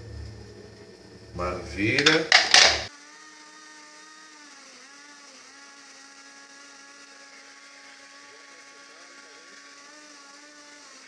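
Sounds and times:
blender motor whining: 0:00.0 - 0:11.0.

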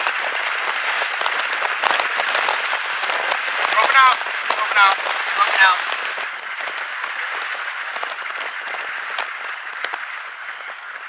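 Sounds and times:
rain pattering: 0:00.0 - 0:11.0.

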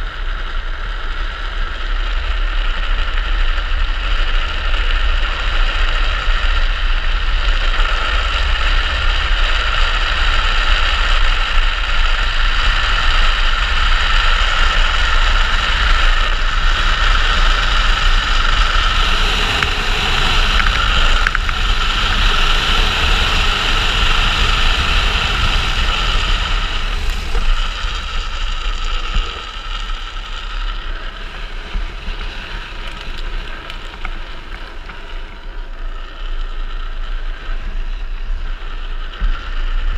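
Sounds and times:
wheels rolling on asphalt: 0:00.0 - 0:39.9
wind rushing over camera: 0:00.0 - 0:39.9.

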